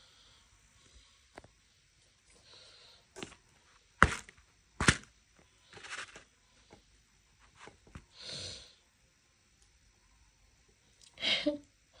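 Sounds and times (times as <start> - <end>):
handling noises on plastic plate: 3.2 - 5.1, 5.7 - 6.3, 7.4 - 8.1.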